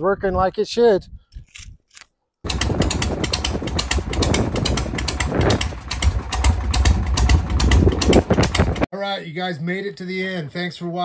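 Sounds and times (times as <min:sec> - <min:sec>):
motorcycle engine running: 0:02.5 - 0:08.9.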